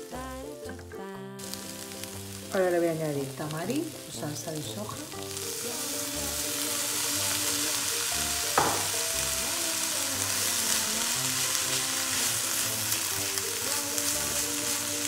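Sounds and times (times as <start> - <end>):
food sizzling in a pan: 0.0 - 15.0
sharp knock: 8.6 - 8.9.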